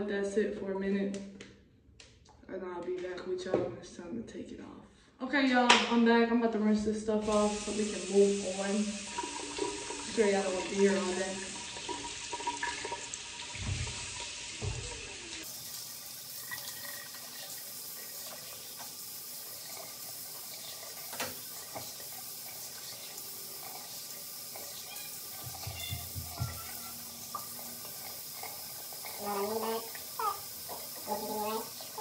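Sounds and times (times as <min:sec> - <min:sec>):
sink tap running: 0:07.2 - 0:32.0.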